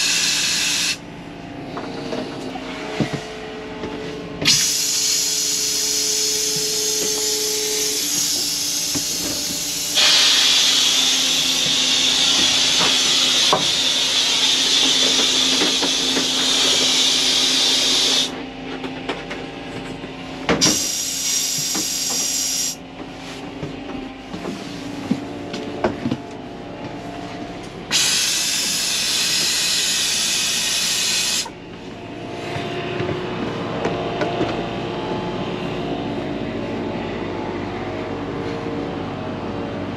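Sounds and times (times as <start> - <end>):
compressed air hissing from faucet: 0.0 - 1.0, 27.9 - 31.5.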